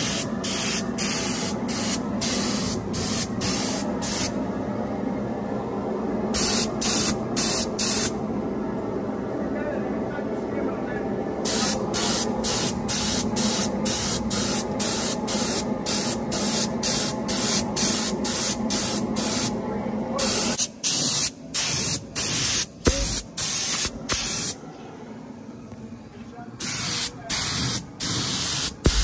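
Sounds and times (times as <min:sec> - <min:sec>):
spray gun hissing bursts: 0:00.0 - 0:04.4, 0:06.4 - 0:08.1, 0:11.4 - 0:19.6, 0:20.2 - 0:24.6, 0:26.6 - 0:29.0
low steady hum: 0:00.0 - 0:20.6.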